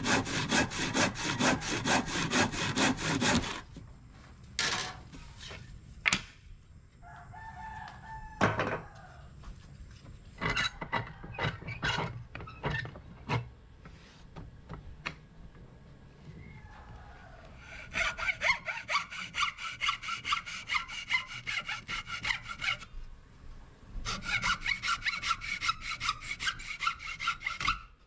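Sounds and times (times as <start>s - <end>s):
saw strokes rasping: 0.0s - 3.7s, 17.6s - 22.9s, 24.0s - 28.0s
rooster crowing: 7.0s - 9.4s, 16.4s - 17.9s.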